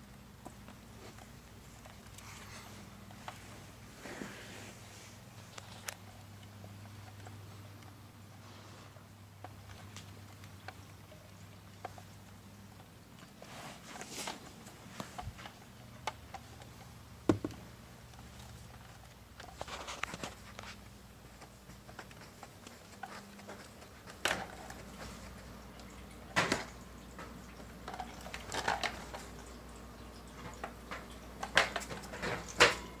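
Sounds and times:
rustling scrapes: 0.9s - 6.2s, 8.3s - 9.0s, 13.2s - 15.6s, 18.2s - 25.5s
hamster ball knocking: 17.2s - 17.8s.

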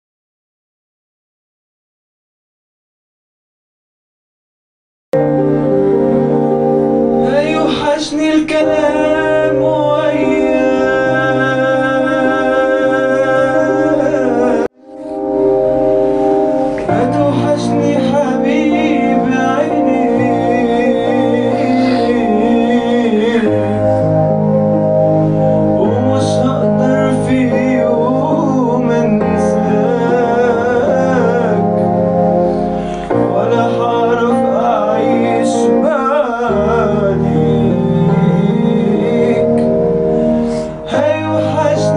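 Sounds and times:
instrumental pop backing: 5.2s - 41.9s
sustained accompanying chords: 5.2s - 41.9s
man singing into a microphone: 7.2s - 14.8s, 16.8s - 24.3s, 25.8s - 41.9s.

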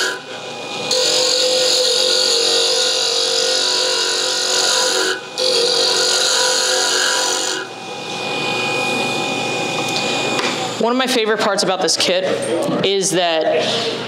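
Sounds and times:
mini lathe humming: 0.0s - 10.9s.

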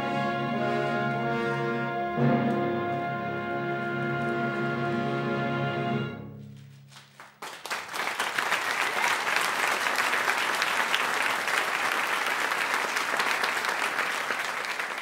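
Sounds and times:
low orchestral note: 0.0s - 7.2s
audience applauding: 6.9s - 15.0s.

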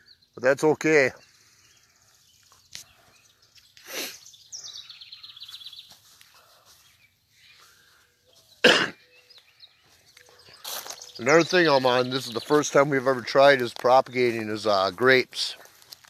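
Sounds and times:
bird chirps: 0.0s - 15.0s
songbird trilling: 1.1s - 6.0s, 7.0s - 14.8s.

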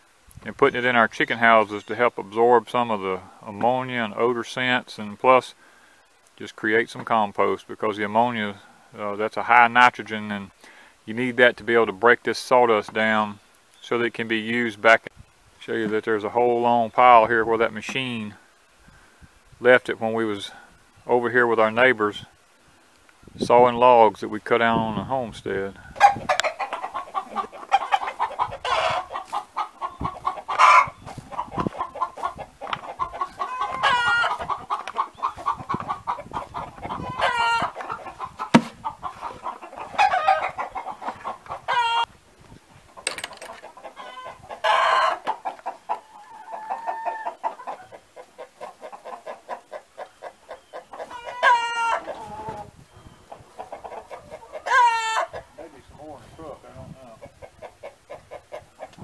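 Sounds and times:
hens clucking: 0.4s - 18.8s, 23.2s - 59.0s
hens drawn-out calls: 25.0s - 42.2s, 42.9s - 59.0s.

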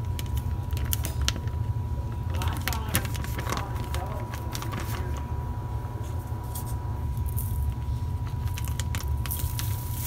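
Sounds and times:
steady low hum: 0.0s - 10.0s
plastic bag crinkling: 2.2s - 5.3s, 7.2s - 10.0s.

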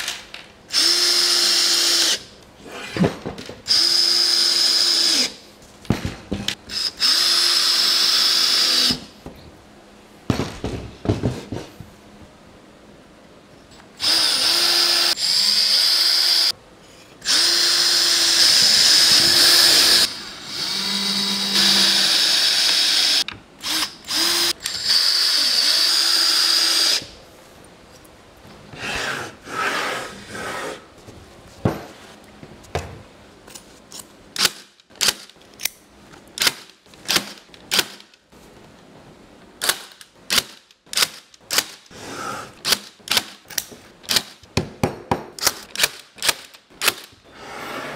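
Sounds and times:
power drill whining: 17.2s - 27.0s.

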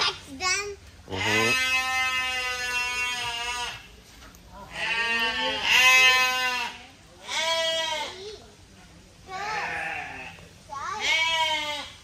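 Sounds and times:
livestock bleating: 1.1s - 3.9s, 4.6s - 8.2s, 9.4s - 10.4s, 11.0s - 12.0s.

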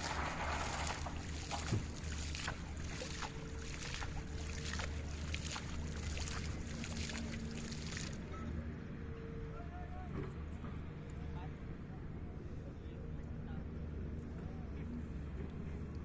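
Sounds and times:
hand splashing shallow water: 0.0s - 8.3s
steady low hum: 0.0s - 16.0s.

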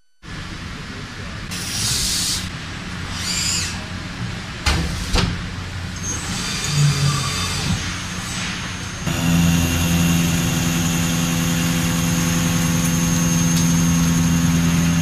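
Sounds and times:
machine humming: 9.0s - 15.0s.

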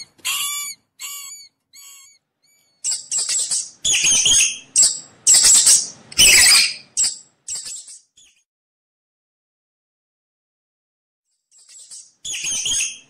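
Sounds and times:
mouse squeaking: 0.0s - 8.4s, 11.6s - 13.0s.

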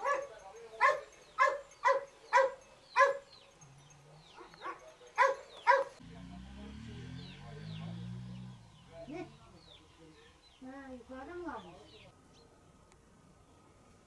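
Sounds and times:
dog barking: 0.0s - 3.3s, 4.3s - 6.0s.

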